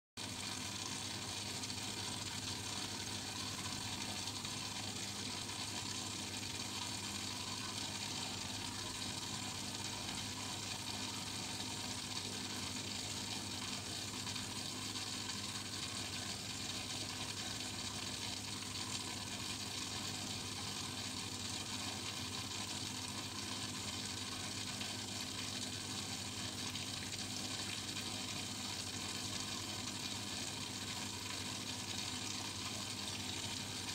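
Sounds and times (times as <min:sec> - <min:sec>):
bubbling trickling water: 0:00.2 - 0:33.9.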